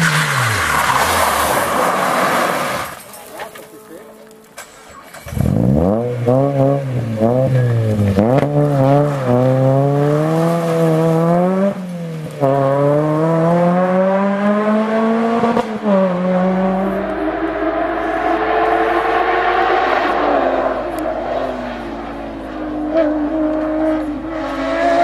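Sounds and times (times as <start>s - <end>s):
car engine revving with gear changes: 5.1s - 25.0s.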